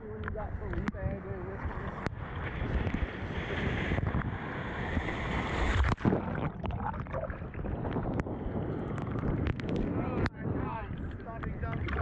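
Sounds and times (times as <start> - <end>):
wind on microphone: 0.0 - 12.0
breaking surf: 1.6 - 12.0
small splashes and bubble crackles: 1.6 - 12.0
water sloshing: 4.9 - 9.9, 10.7 - 12.0.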